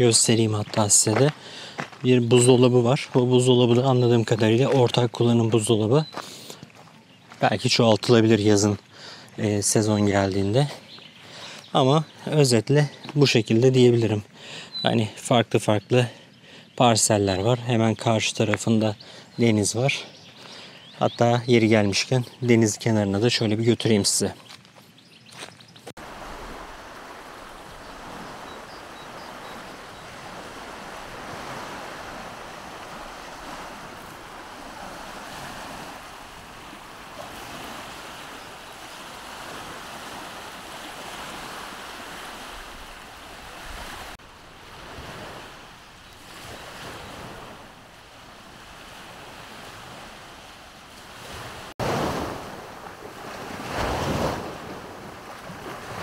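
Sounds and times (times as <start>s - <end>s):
sea waves washing onto shore: 25.9s - 56.0s.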